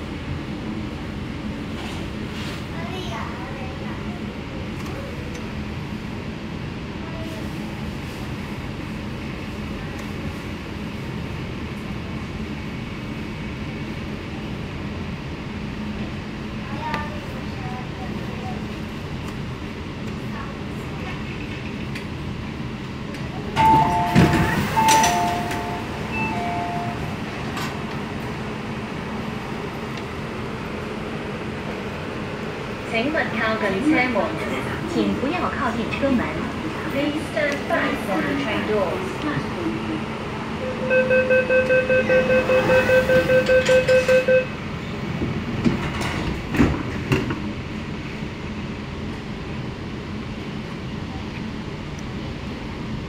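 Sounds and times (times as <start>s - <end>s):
standing train hum: 0.0s - 53.0s
train doors sliding shut: 23.1s - 28.4s, 42.0s - 44.3s, 45.1s - 47.6s
sliding doors thudding shut: 23.6s - 25.8s
high and low door chime beeps: 23.6s - 27.1s, 40.8s - 44.5s.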